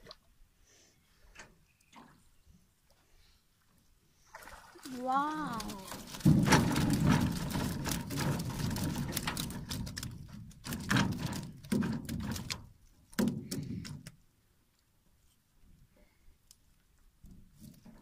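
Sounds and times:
fish flapping on metal boat floor: 0:04.9 - 0:14.1
wire fish trap rattling against hull: 0:05.4 - 0:14.1.

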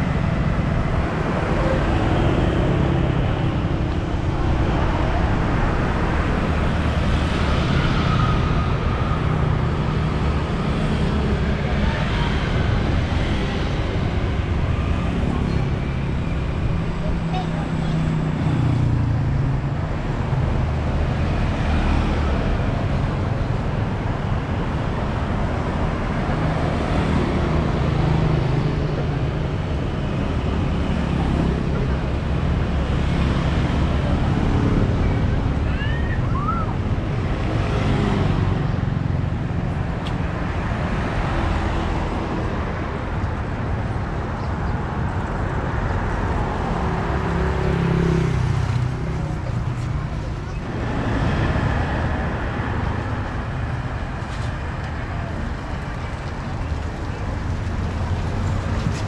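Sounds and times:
vehicle engines humming: 0:00.0 - 0:59.0.

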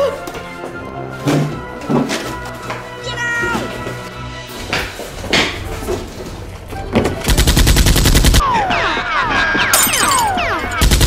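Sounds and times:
automatic gunfire: 0:10.8 - 0:11.0.

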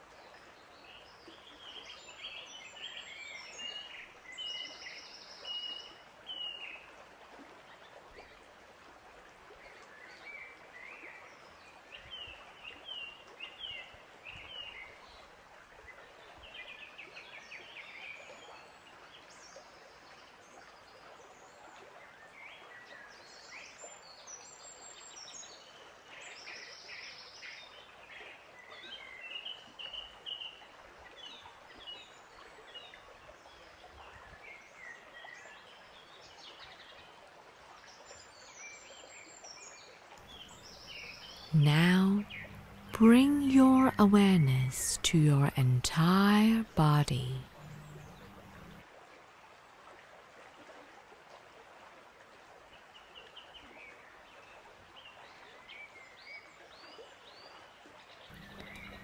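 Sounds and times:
outdoor ambience hiss: 0:40.3 - 0:48.8, 0:58.3 - 0:59.0.

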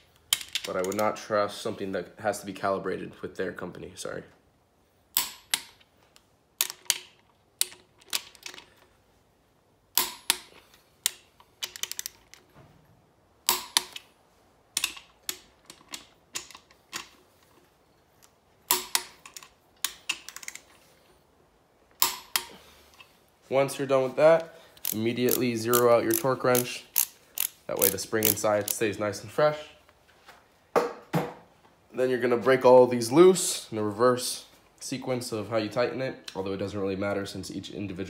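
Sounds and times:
torque wrench clicking: 0:13.4 - 0:14.0, 0:14.8 - 0:17.1, 0:24.7 - 0:28.8
ratchet ticks: 0:24.8 - 0:28.8.

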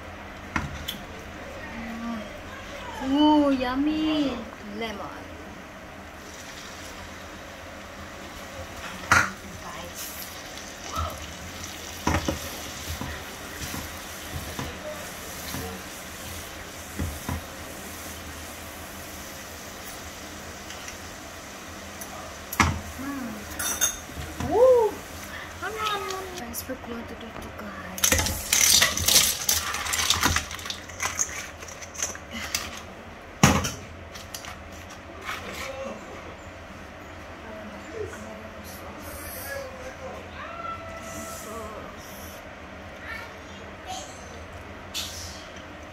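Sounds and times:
sauce sizzling in a frying pan: 0:06.2 - 0:26.4.

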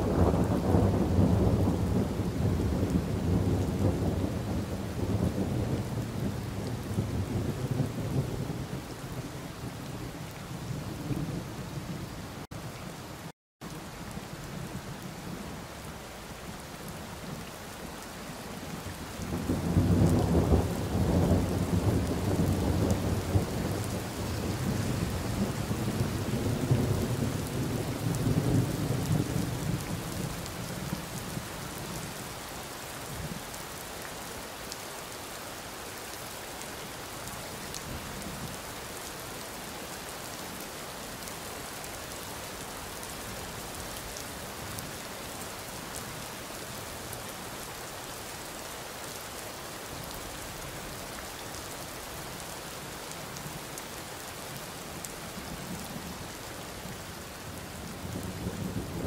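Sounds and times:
thunder rumbling: 0:00.0 - 0:09.0
steady rain: 0:00.0 - 0:59.0.

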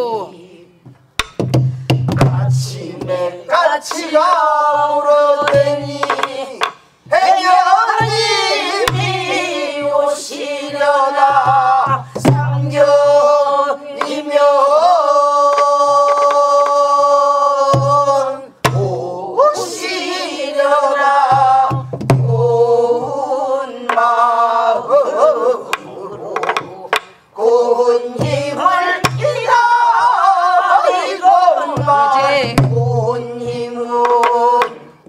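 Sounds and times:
group singing folk song: 0:00.0 - 0:35.0
barrel drum beats: 0:00.8 - 0:14.7, 0:17.6 - 0:24.9, 0:28.0 - 0:30.2, 0:30.8 - 0:35.0.

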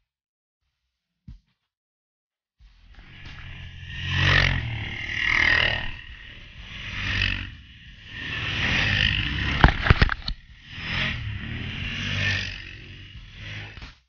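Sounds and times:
atv engines passing on gravel: 0:03.0 - 0:13.7.

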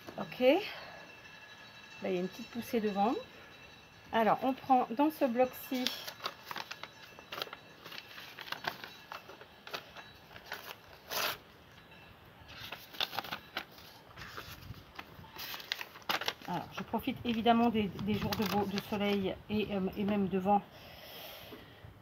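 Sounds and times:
paper rustling and tearing: 0:05.8 - 0:09.8, 0:10.4 - 0:11.4, 0:12.5 - 0:16.8, 0:18.0 - 0:19.2.

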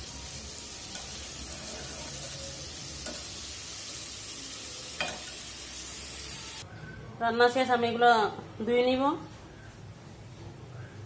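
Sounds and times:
curry sizzling in pan: 0:00.0 - 0:06.6.

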